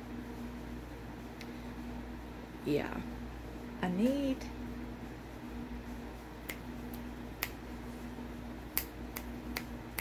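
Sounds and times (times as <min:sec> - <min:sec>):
fingers snapping: 0:06.4 - 0:07.6, 0:08.7 - 0:10.0.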